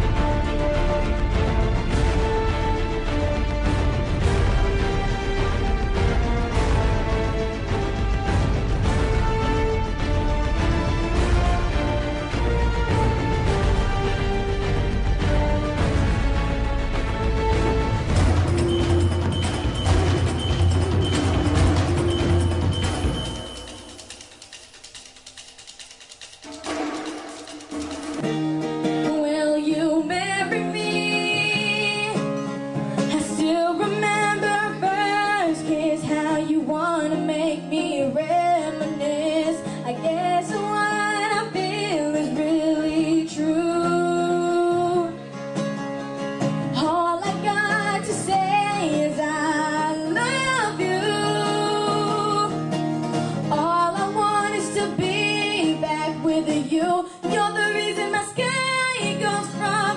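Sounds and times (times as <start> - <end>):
acoustic guitar: 0.0 - 59.9
woman singing into a microphone: 29.0 - 45.2, 46.6 - 59.9.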